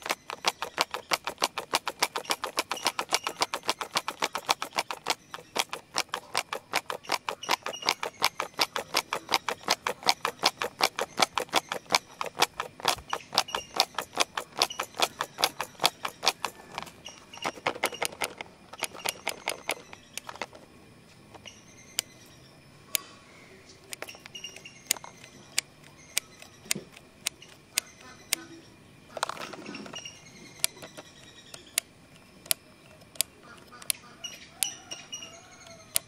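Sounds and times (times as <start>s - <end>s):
plastic pencil box rattling: 0.0s - 20.7s, 29.1s - 31.2s.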